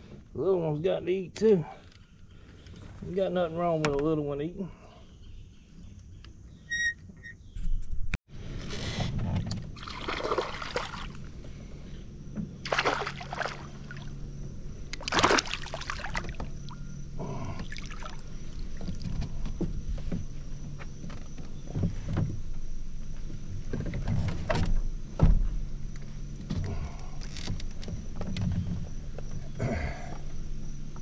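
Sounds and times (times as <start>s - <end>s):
water splashing and sloshing: 9.6s - 20.2s
fish splashing into water: 9.8s - 11.3s, 12.6s - 14.2s, 15.0s - 16.8s, 17.6s - 18.9s.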